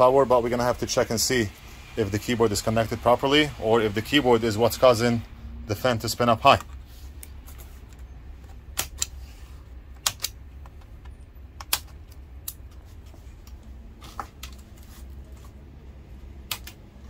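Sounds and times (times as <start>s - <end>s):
steady low hum: 0.0s - 17.0s
plastic clips popping loose: 8.6s - 9.2s, 9.9s - 12.8s.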